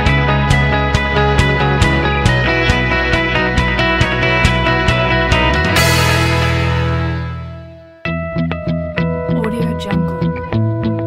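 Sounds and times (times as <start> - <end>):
background music with steady beat: 0.0 - 11.0
cymbal crash: 5.7 - 7.7.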